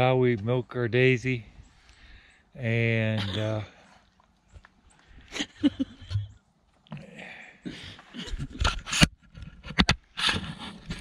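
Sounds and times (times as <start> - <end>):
handling noise on microphone: 8.1 - 11.0.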